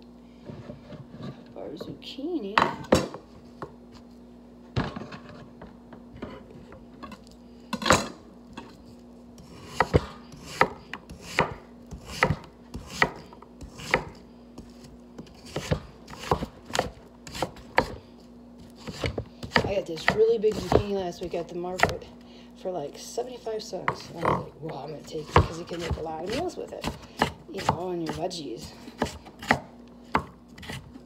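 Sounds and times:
knife chopping on cutting board: 0:09.4 - 0:18.0, 0:18.7 - 0:22.1, 0:25.1 - 0:31.0.

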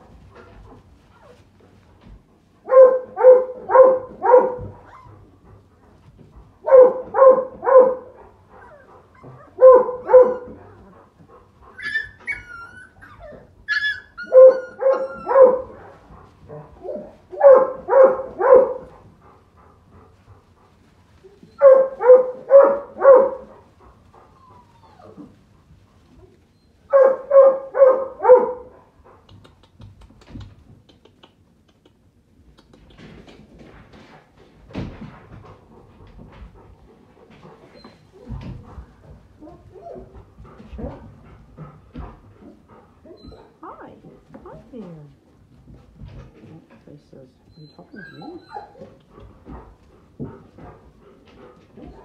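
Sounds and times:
dog whining: 0:01.1 - 0:01.4, 0:06.8 - 0:10.9, 0:11.7 - 0:15.8, 0:24.2 - 0:25.4, 0:37.6 - 0:38.5, 0:42.4 - 0:43.6, 0:47.5 - 0:49.2
dog barking: 0:02.7 - 0:04.7, 0:06.6 - 0:08.2, 0:09.6 - 0:10.6, 0:14.2 - 0:15.8, 0:17.4 - 0:18.9, 0:21.6 - 0:23.5, 0:26.9 - 0:28.7.

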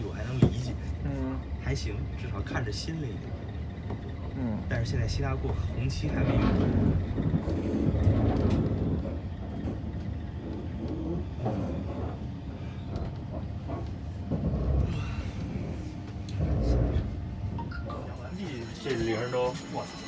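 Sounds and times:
train carriage rumbling on rails: 0:00.0 - 0:20.0.

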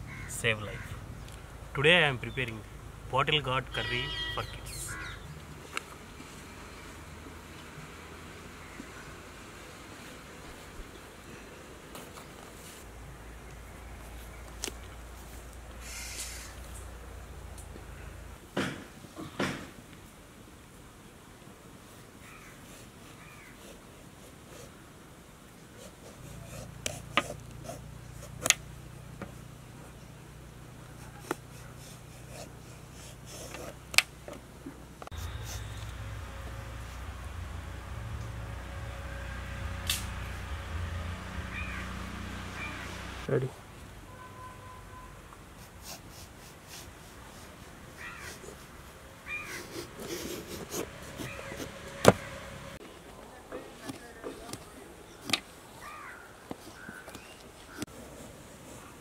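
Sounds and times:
peeler rasping gourd skin: 0:25.8 - 0:28.6, 0:49.4 - 0:52.2
steady low hum: 0:34.8 - 0:43.3
wavering animal calls: 0:41.4 - 0:43.1
peeler scraping gourd rind: 0:49.3 - 0:52.1.

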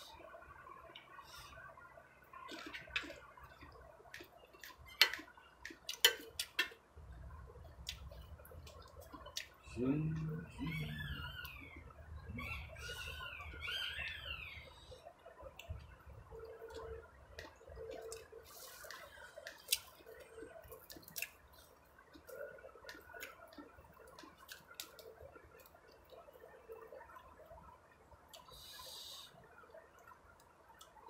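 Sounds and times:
chewing and lip-smacking: 0:07.7 - 0:09.6, 0:16.7 - 0:26.3
high warbling chirps: 0:09.2 - 0:15.1.

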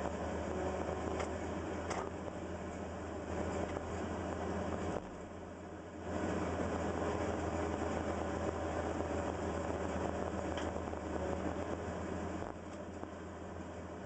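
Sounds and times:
excavator engine and hydraulics: 0:00.0 - 0:14.0.

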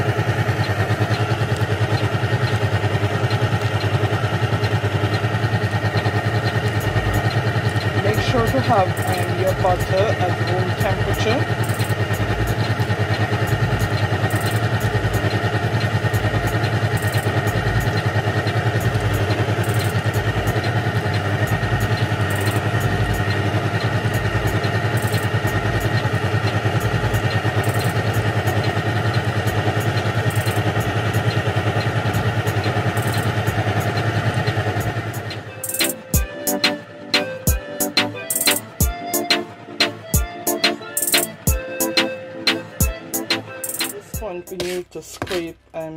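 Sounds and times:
stand mixer motor humming: 0:00.0 - 0:44.8
mixer beater rhythmic beat: 0:00.0 - 0:45.9.

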